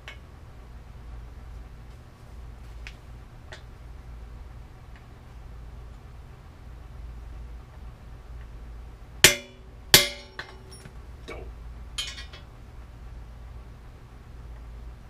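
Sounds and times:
hammer striking metal: 9.2s - 10.9s.

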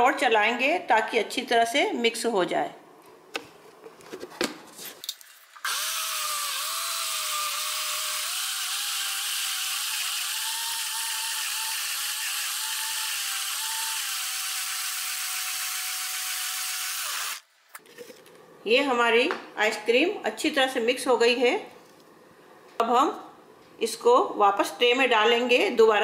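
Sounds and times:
mixer grinder whirring: 5.7s - 17.4s.

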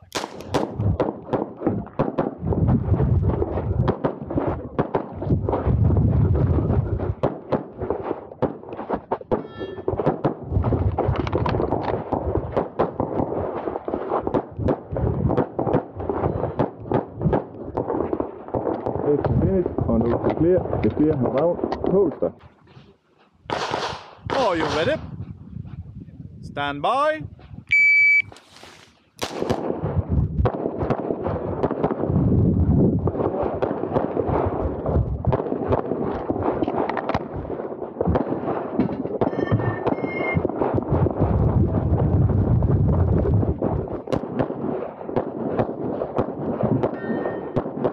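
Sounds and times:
pistol shots: 0.0s - 2.4s, 23.5s - 25.0s, 29.2s - 32.0s.

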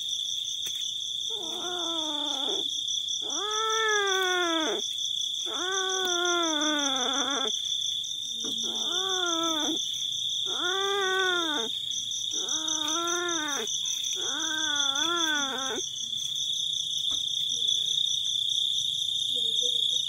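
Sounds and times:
kitten yowling: 1.3s - 4.8s, 5.4s - 7.6s, 8.4s - 15.9s.

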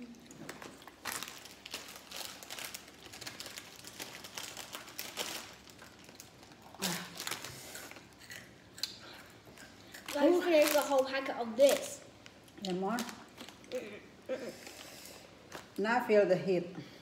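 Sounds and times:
plastic snack packet crinkling: 0.3s - 9.0s, 9.6s - 13.8s.

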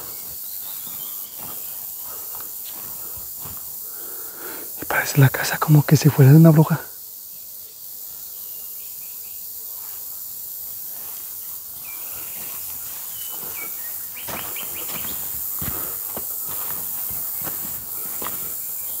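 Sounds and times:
footsteps on pine needles and stones: 0.0s - 4.2s, 10.6s - 19.0s
steady high hiss: 0.0s - 19.0s.

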